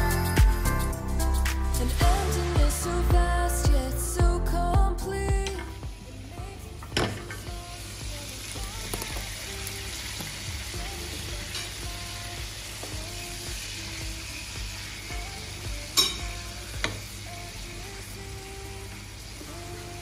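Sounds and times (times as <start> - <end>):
chicken sizzling in grill pan: 7.5 - 20.0.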